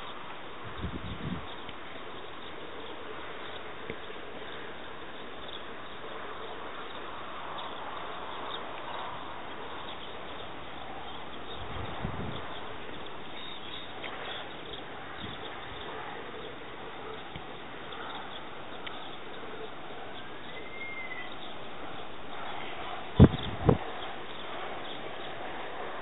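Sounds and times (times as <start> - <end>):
outdoor background hiss: 0.0 - 26.0
faint high chirps: 17.0 - 21.6.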